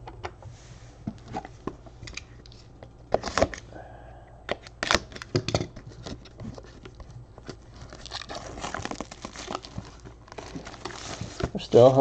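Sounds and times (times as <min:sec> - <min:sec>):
plastic wrap crinkling: 0:07.6 - 0:12.0.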